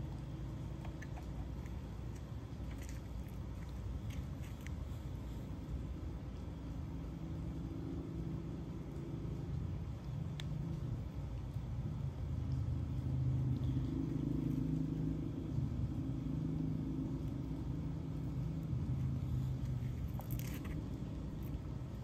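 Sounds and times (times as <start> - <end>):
low rumbling hum: 0.0 - 22.0.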